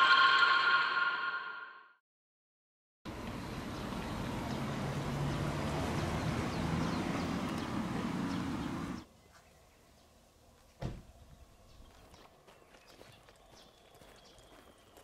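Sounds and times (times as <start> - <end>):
rushing noise: 0.0 - 2.0.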